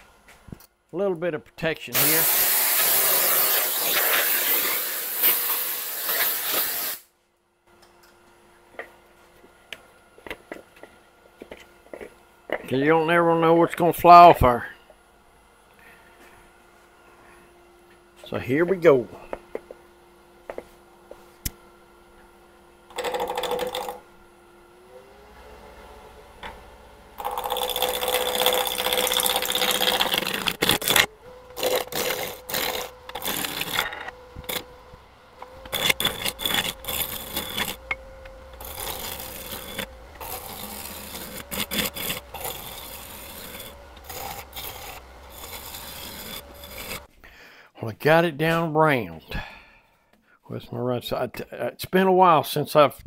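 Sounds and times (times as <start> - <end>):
gouge cutting spinning wood: 2.0 - 7.0, 22.9 - 24.0, 25.0 - 47.1
wood lathe motor whining: 22.9 - 47.1.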